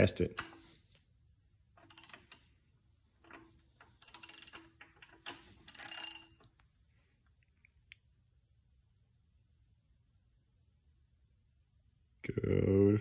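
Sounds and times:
faint metallic clicking and rattling: 0:01.8 - 0:06.7.

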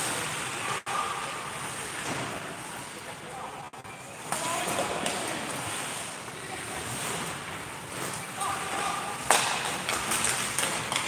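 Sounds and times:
puck and stick knock: 0:08.7 - 0:11.0.

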